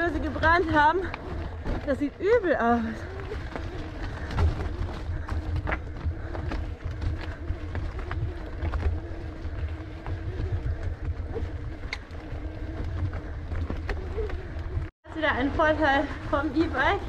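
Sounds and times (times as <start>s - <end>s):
low electric motor hum: 0.0s - 17.0s
tyres crunching over gravel: 0.0s - 17.0s
wind rumble on microphone: 0.0s - 17.0s.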